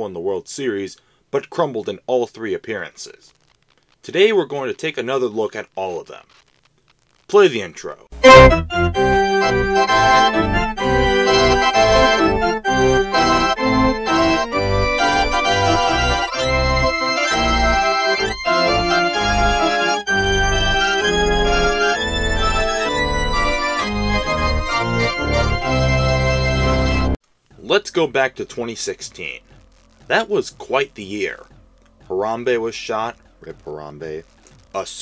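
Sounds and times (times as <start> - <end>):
instrumental music with steady beat: 8.2 - 27.7, 28.5 - 34.9.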